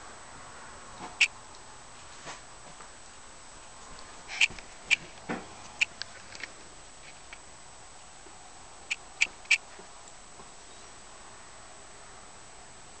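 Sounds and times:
squeaky clicks: 8.9 - 9.6.

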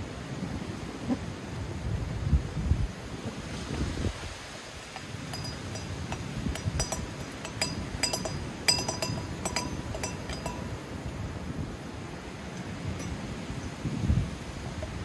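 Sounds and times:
metal percolator parts clinking: 4.8 - 11.4, 12.4 - 13.8.

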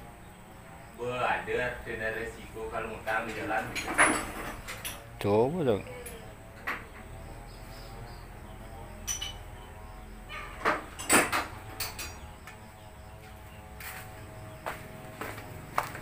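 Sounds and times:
metallic clinks of tools: 9.0 - 9.5.

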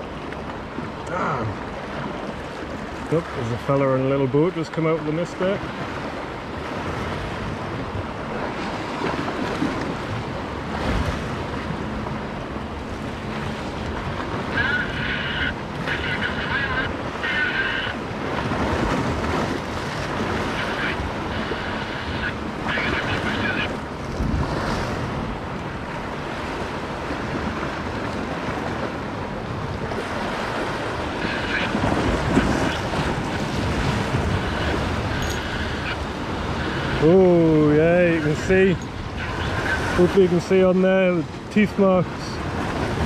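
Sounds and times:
wind buffeting microphone: 5.6 - 43.0.

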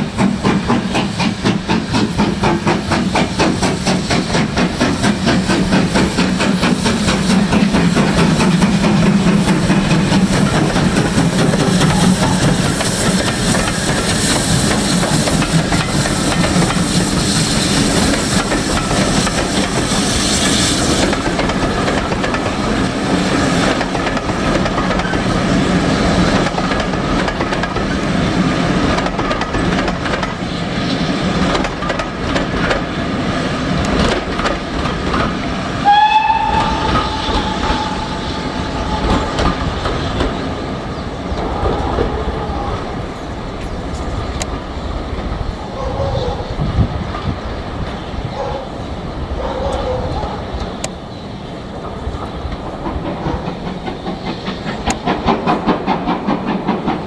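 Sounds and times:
train rumbling and clattering past: 0.0 - 57.0
steam locomotive whistle: 35.8 - 39.8.

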